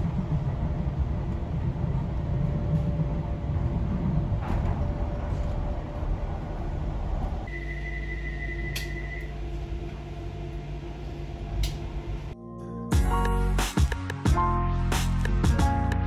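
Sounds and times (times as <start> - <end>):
train carriage rumble: 0.0 - 12.4
click: 8.7 - 9.3, 11.6 - 11.8.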